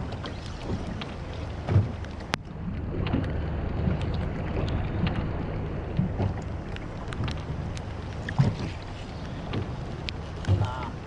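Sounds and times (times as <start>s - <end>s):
wind rumble on microphone: 0.0s - 11.0s
light rain ticking: 3.1s - 11.0s.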